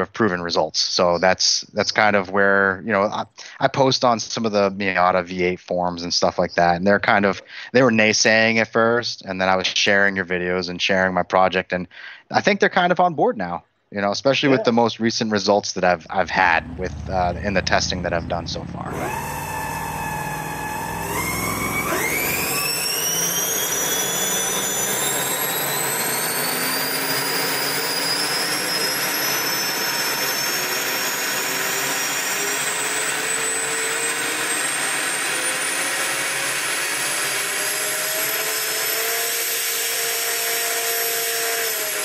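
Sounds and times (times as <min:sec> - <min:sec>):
high motor whine climbing: 0:16.1 - 0:42.0.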